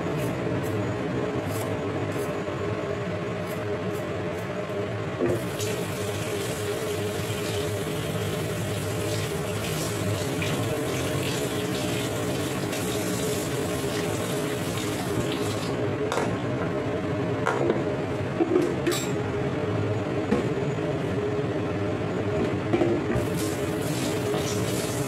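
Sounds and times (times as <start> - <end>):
steady low hum: 0.0 - 11.2
utensil being rinsed: 5.4 - 15.7, 23.2 - 25.0.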